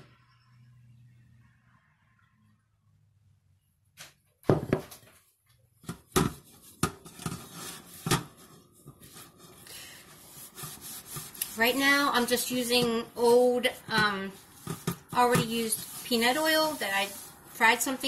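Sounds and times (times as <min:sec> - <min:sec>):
rag rubbing on iron: 0:06.5 - 0:18.0.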